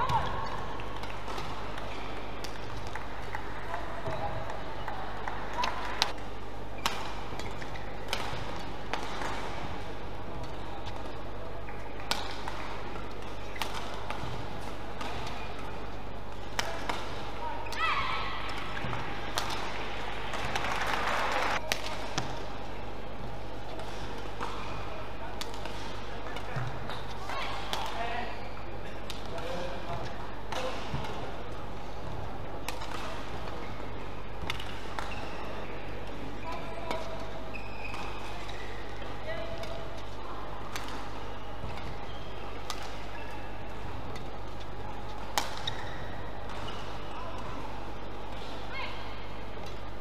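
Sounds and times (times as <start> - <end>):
badminton rackets hitting shuttlecock: 0.0 - 4.6, 5.2 - 22.5, 23.7 - 35.4, 36.0 - 47.6
crowd noise: 0.0 - 50.0
indoor arena hum: 0.0 - 50.0
shoe squeaks on court: 37.5 - 38.9.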